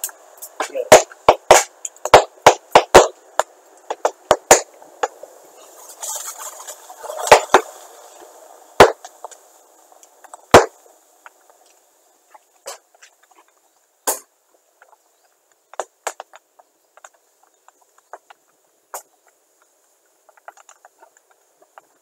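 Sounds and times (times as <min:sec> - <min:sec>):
hissing: 0:05.1 - 0:11.6
capacitors bursting with bangs: 0:10.5 - 0:10.8.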